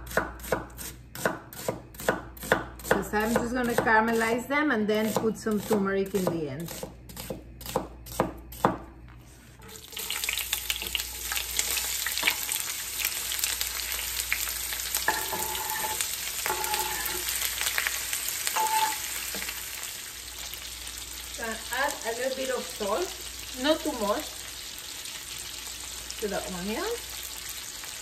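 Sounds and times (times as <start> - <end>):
knife chopping on cutting board: 0.0 - 4.0, 5.0 - 8.9
onions sizzling in frying pan: 9.6 - 28.0.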